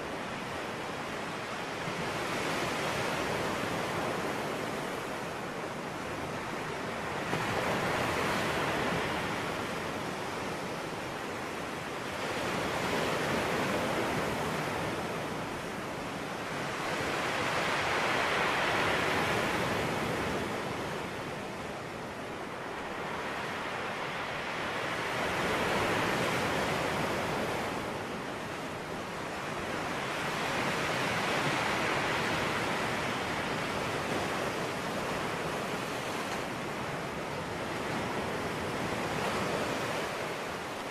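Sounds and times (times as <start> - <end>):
sea waves washing in: 0.0 - 40.9.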